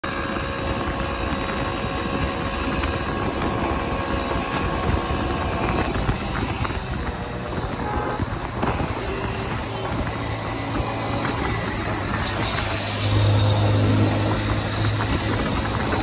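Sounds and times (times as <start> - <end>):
motorcycle engine hum: 0.0 - 16.0
road noise: 0.0 - 16.0
wind buffeting microphone: 0.0 - 16.0.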